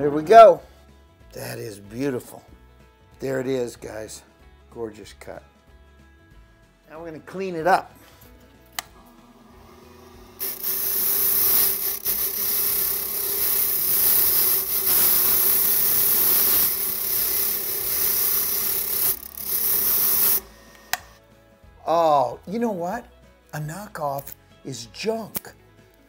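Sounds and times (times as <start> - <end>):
deburring brush motor hum: 8.8 - 21.2
harsh brushing hiss: 9.4 - 21.1.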